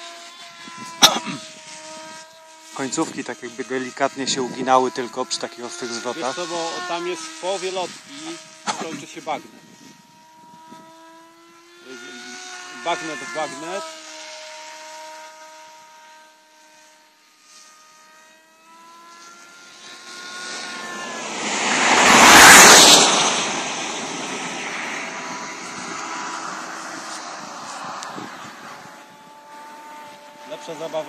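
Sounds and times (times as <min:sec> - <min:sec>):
model airplane motor whine: 0:00.0 - 0:31.0.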